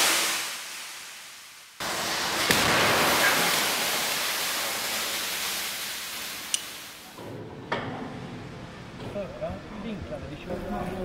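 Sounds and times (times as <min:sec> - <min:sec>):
long hiss: 0:00.0 - 0:07.1
sharp crack: 0:02.3 - 0:05.3.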